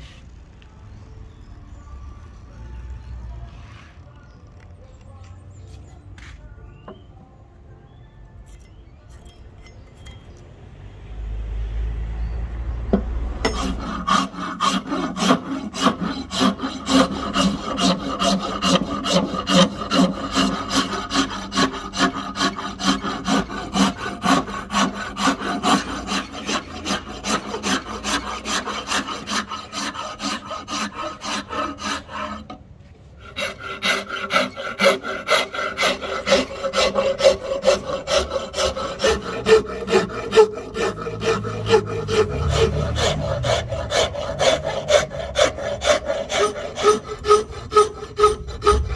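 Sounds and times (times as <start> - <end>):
file rasping on wooden handle: 13.0 - 32.6, 33.2 - 48.9.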